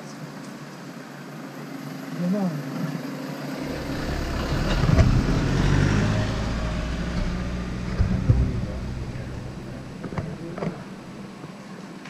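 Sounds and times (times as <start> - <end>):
road noise: 0.9 - 12.0
golf cart engine hum: 3.1 - 11.7
short knocks: 3.7 - 11.4.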